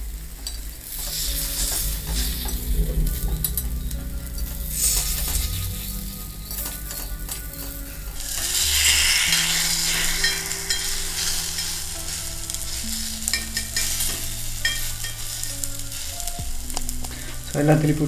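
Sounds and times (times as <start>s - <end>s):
batter sizzling in oil: 0.0s - 18.0s
spoon and fork scraping pan: 5.2s - 16.0s.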